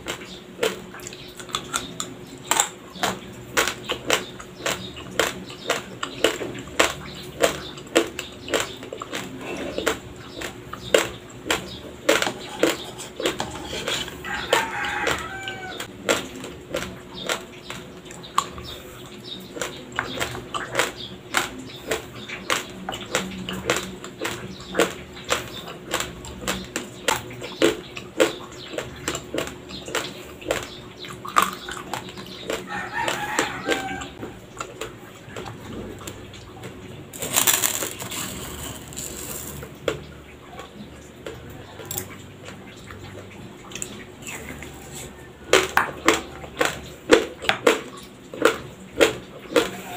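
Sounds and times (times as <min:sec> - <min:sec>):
rooster crowing: 0:14.1 - 0:15.9, 0:32.7 - 0:34.2
rice crunched between teeth: 0:37.1 - 0:39.7.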